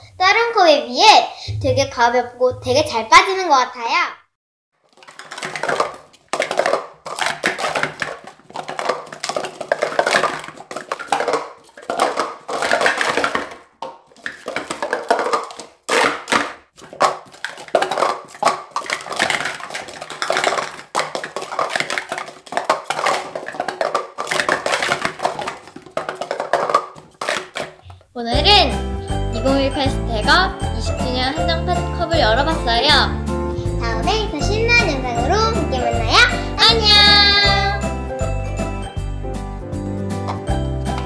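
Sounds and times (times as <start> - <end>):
plastic cups clattering: 4.8 - 28.6, 31.1 - 37.8, 40.2 - 41.0.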